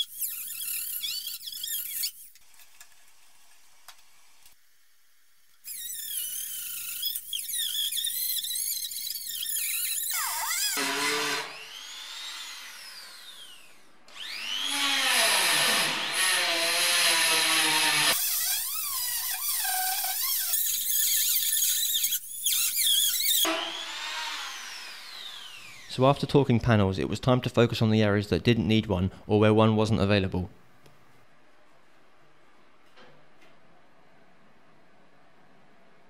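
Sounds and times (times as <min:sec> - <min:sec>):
rotary grinder whining on metal: 0:05.8 - 0:25.9.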